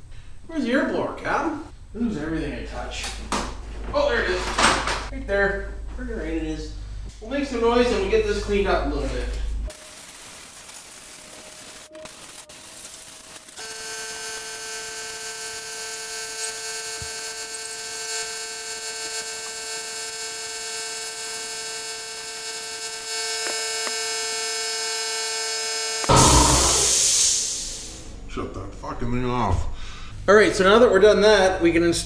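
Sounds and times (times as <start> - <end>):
air blow gun hissing: 9.7 - 13.7, 26.0 - 28.1.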